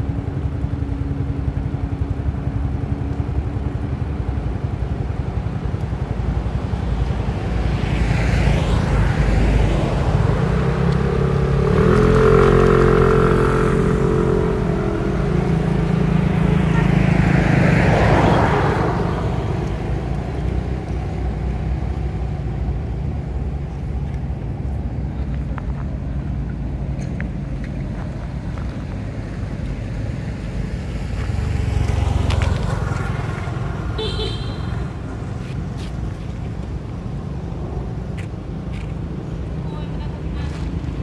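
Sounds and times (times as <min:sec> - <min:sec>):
vehicles passing: 0:00.0 - 0:41.0
low engine rumble: 0:08.6 - 0:41.0.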